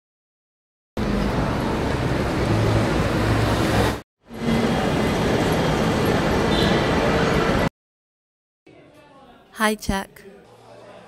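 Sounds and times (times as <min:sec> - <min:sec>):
traffic and street bustle: 0:01.0 - 0:07.7.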